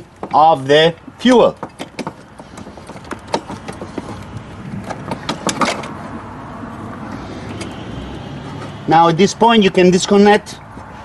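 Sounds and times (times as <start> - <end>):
carburetor clicks and knocks: 1.0 - 6.1.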